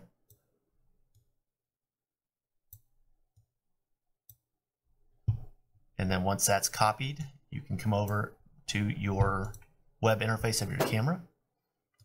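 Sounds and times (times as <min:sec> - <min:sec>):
computer mouse clicks: 0:02.7 - 0:03.5.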